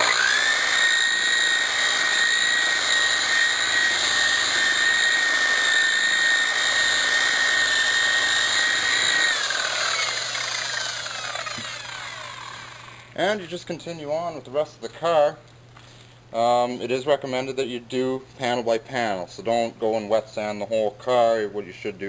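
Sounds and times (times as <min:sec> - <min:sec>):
electric polisher whining: 0:00.0 - 0:13.2.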